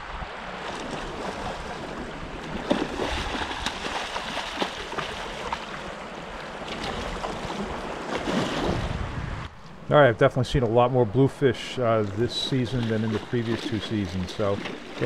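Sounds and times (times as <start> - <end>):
surf washing at shoreline: 0.0 - 10.1, 10.8 - 15.0
fish thrashing and splashing: 0.6 - 8.9.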